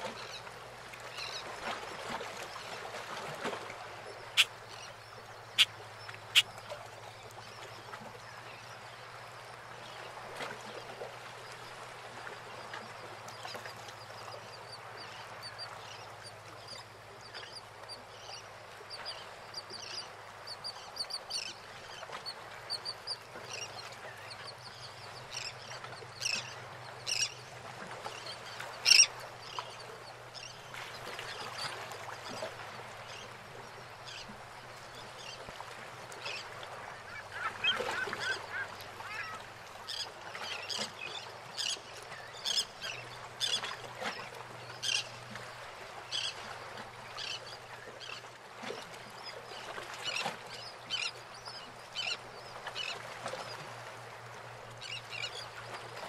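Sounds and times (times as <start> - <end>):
water lapping around boats: 0.0 - 56.0
birds calling: 36.9 - 40.1.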